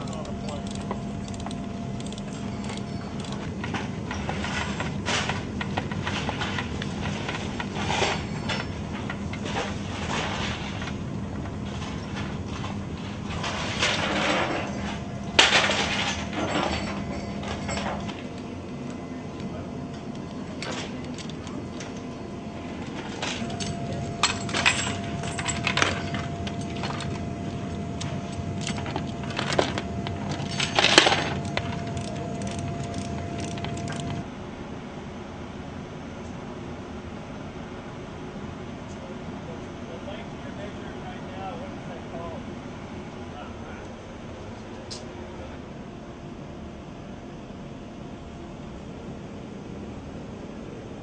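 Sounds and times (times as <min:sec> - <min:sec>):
steel chains clanking: 0:00.0 - 0:10.8, 0:13.3 - 0:18.4, 0:22.8 - 0:34.2
steady hum: 0:00.0 - 0:51.0.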